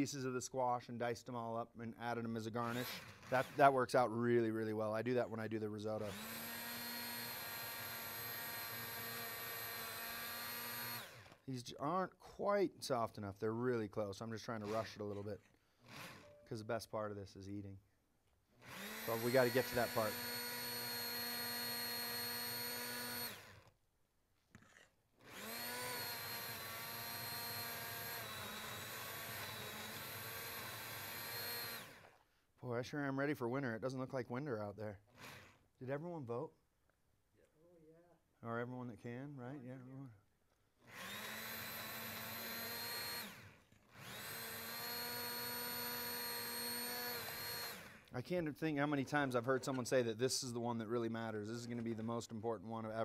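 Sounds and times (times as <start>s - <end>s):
immersion blender motor whine: 2.6s - 3.8s, 6.0s - 11.4s, 15.8s - 16.4s, 18.6s - 23.7s, 24.6s - 32.2s, 40.8s - 48.1s.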